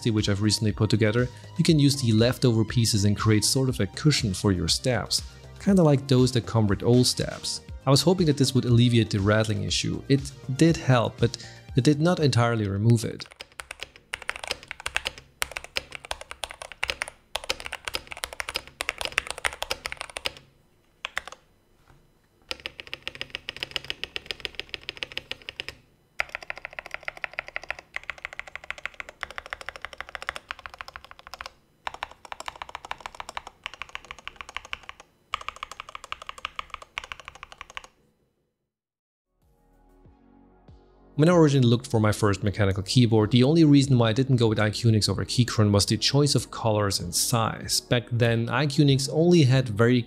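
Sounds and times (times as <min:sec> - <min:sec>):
mechanical keyboard typing: 0:13.2 - 0:21.4, 0:22.5 - 0:38.0.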